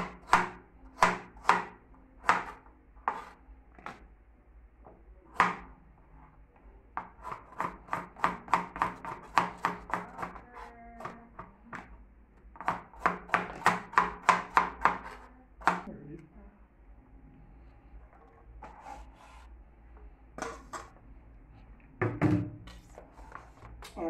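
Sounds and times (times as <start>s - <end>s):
knife chopping on plastic board: 0.0s - 4.0s, 5.4s - 5.7s, 7.0s - 11.9s, 12.6s - 15.9s.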